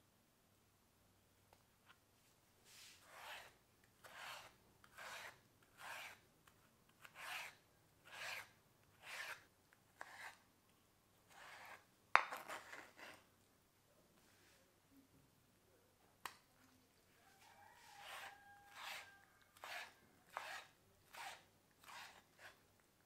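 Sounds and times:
rasping scraping strokes: 0:17.8 - 0:22.6.

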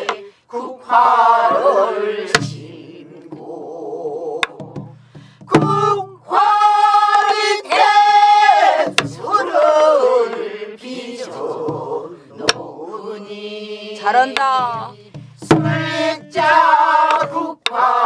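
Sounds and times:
group singing folk song: 0:00.0 - 0:18.0
barrel drum strokes: 0:14.4 - 0:17.4.

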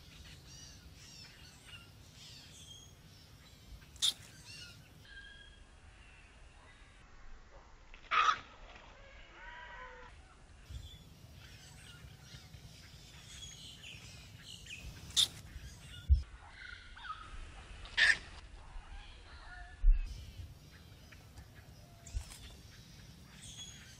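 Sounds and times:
harsh bird calls: 0:00.0 - 0:05.7, 0:09.4 - 0:17.3
soft bird chirps: 0:00.0 - 0:07.0, 0:10.2 - 0:17.3, 0:18.7 - 0:23.9.

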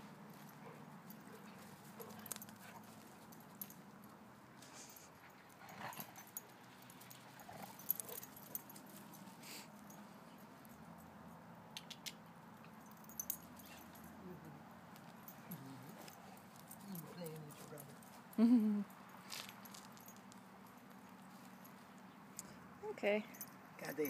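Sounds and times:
light clicks and scuffs: 0:00.1 - 0:11.1, 0:14.8 - 0:18.4, 0:19.1 - 0:22.6.

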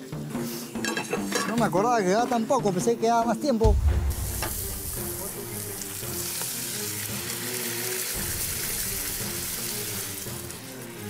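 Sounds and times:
faint background music: 0:00.0 - 0:11.0
food sizzling in a pan: 0:04.2 - 0:11.0.

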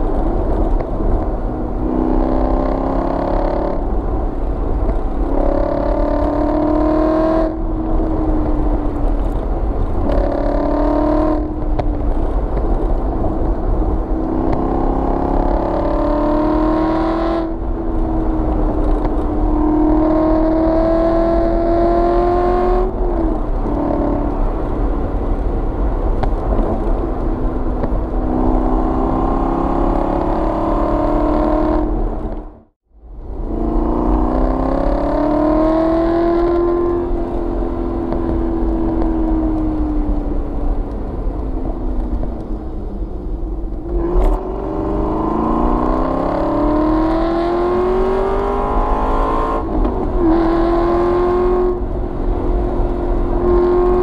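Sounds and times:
car engine revving hard: 0:01.8 - 0:03.8, 0:05.3 - 0:07.6, 0:10.1 - 0:11.6, 0:14.2 - 0:17.6, 0:18.9 - 0:22.9, 0:28.2 - 0:32.1, 0:33.5 - 0:37.1, 0:43.9 - 0:51.8, 0:52.6 - 0:54.0.

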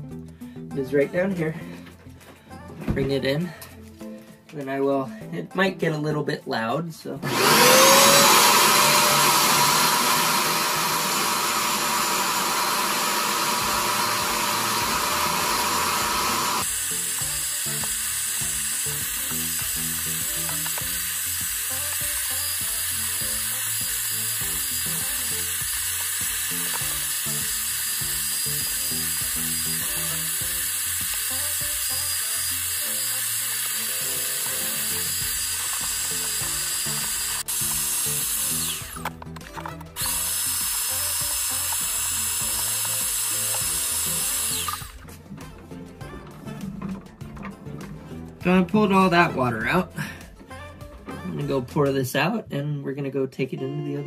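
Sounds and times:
vacuum motor whining and suction: 0:07.2 - 0:39.2, 0:39.9 - 0:45.1.

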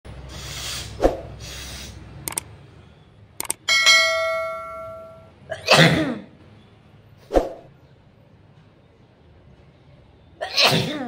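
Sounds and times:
short clicks: 0:02.2 - 0:02.5, 0:03.4 - 0:03.6
bell ding: 0:03.7 - 0:05.4.

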